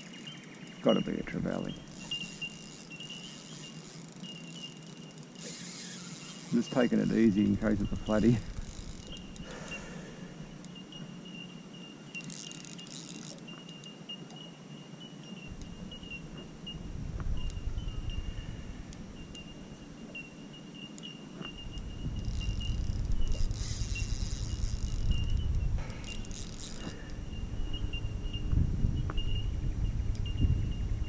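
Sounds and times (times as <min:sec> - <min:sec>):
light rattling from reel: 0:00.0 - 0:14.3, 0:17.4 - 0:29.6
steady high-pitched whine: 0:00.0 - 0:31.0
fishing reel winding: 0:01.8 - 0:09.8, 0:12.1 - 0:13.8, 0:21.6 - 0:27.2.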